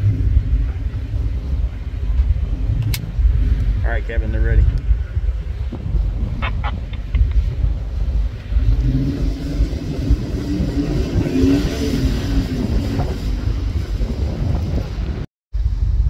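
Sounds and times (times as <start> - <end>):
wheels spinning in sand: 5.6 - 16.0
truck engine revving: 5.8 - 15.3.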